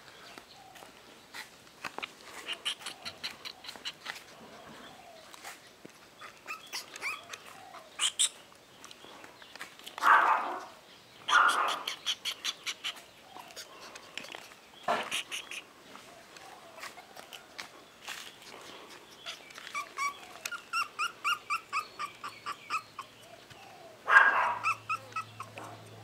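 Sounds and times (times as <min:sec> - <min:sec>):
puppy whimpering and squeaking: 0:02.4 - 0:05.6, 0:06.2 - 0:08.4, 0:11.3 - 0:15.6, 0:19.2 - 0:23.5, 0:24.2 - 0:26.0.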